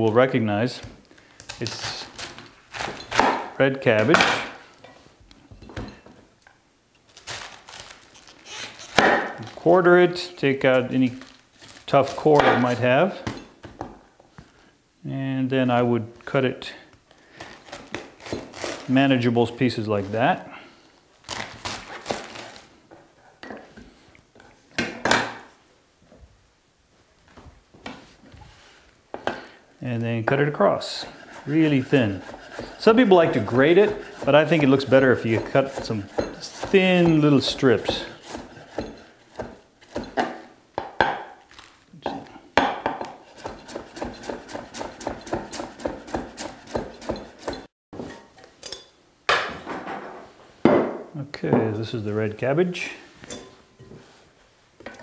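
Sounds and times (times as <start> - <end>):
knife cutting cabbage: 1.5 - 3.5, 17.4 - 19.0, 21.3 - 22.6, 30.8 - 40.3, 43.1 - 47.7.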